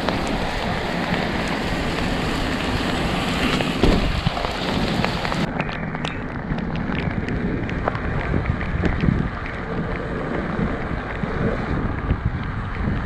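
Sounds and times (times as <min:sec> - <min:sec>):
heavy rain hissing: 0:00.0 - 0:05.5
raindrops clicking close by: 0:00.0 - 0:13.0.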